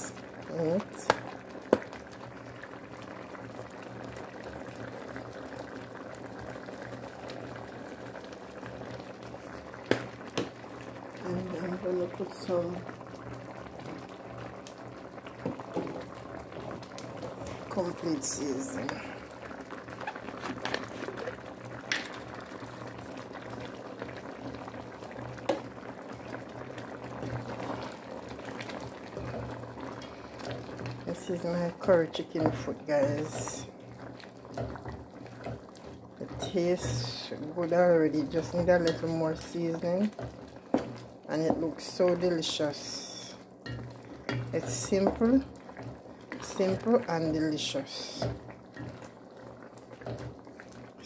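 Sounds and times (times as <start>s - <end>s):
pot of curry bubbling: 0.0s - 51.0s.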